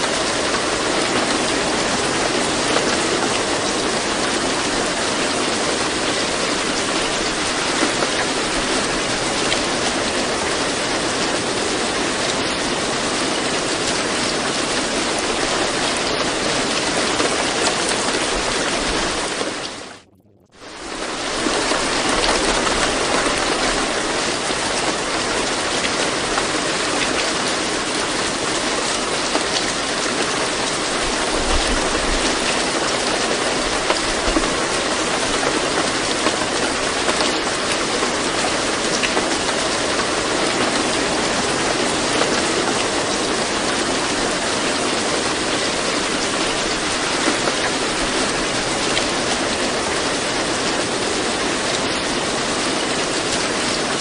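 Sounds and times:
steady rain hiss: 0.0s - 20.0s, 20.6s - 54.0s
rain drop ticks: 15.1s - 25.2s.

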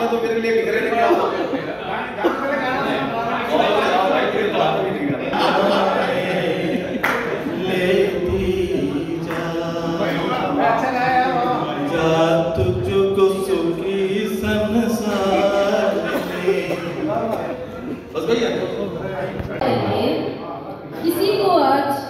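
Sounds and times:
man singing through loudspeakers: 3.5s - 17.7s.

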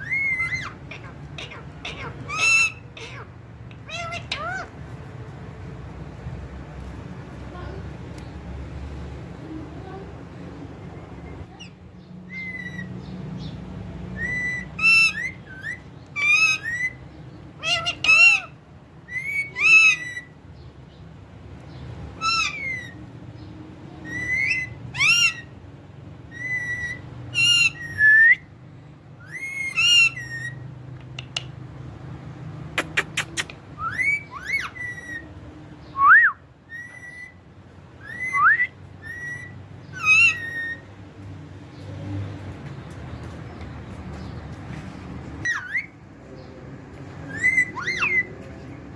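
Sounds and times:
parakeets whistling calls: 0.0s - 4.8s, 11.5s - 20.4s, 22.1s - 23.0s, 24.0s - 25.6s, 26.3s - 28.5s, 29.2s - 30.7s, 32.8s - 40.9s, 45.4s - 46.0s, 47.2s - 48.4s.

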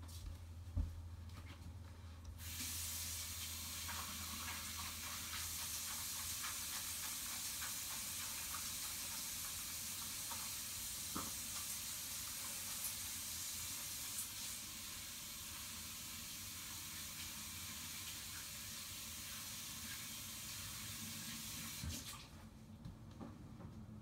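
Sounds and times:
steady hiss with faint ticks: 1.3s - 15.6s.

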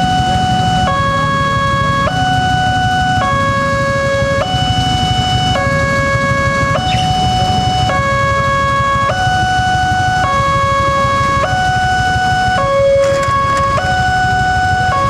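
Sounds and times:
traffic rumble: 0.0s - 15.0s
level-crossing alarm two-tone chime: 4.6s - 8.0s.

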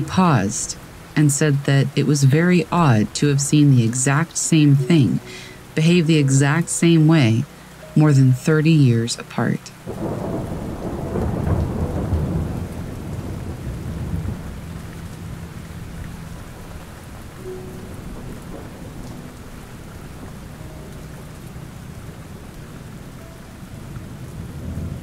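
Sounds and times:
steady rain: 0.0s - 25.0s
thunder rumbling: 9.8s - 25.0s.

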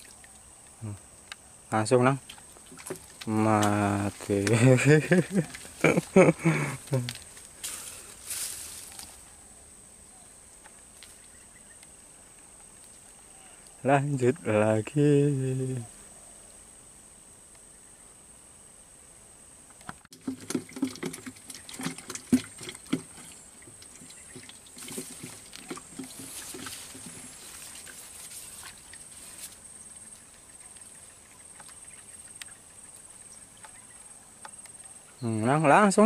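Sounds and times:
high insect buzz: 0.0s - 20.2s, 21.2s - 36.0s
rod handling knocks and rustles: 21.8s - 29.6s.

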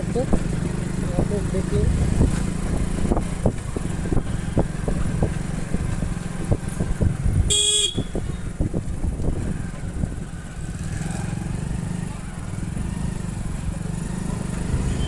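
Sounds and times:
motorcycle engine running: 0.0s - 15.0s
motorcycle horn toot: 7.5s - 8.3s.

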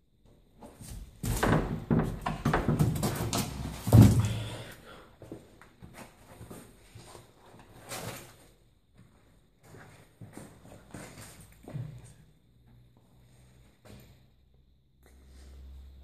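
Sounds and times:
small knocks and scuffs: 5.2s - 13.1s.

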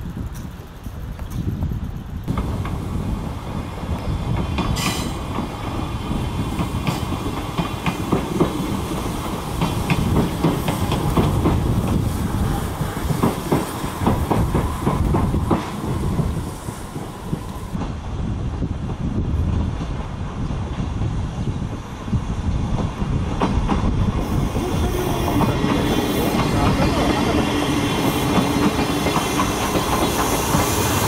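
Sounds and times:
train wheels clicking over rail joints: 0.0s - 18.0s, 22.7s - 31.0s
steam hiss: 2.3s - 17.8s, 24.2s - 31.0s.

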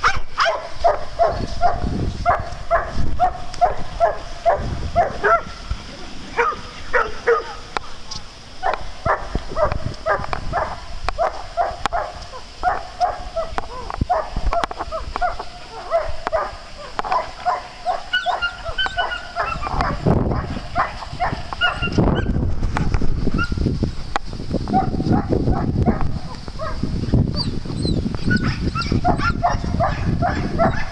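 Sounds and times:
dogs barking: 0.0s - 22.4s, 24.7s - 27.5s, 28.3s - 30.9s
high-pitched dog yips: 17.1s - 22.4s, 27.4s - 30.9s.

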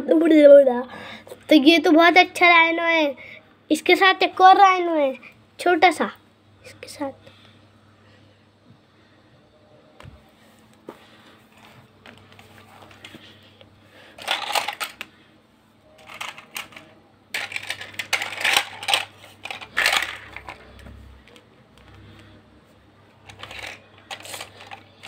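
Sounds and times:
plastic toys clattering: 14.0s - 15.1s, 16.0s - 20.8s, 23.2s - 25.0s.

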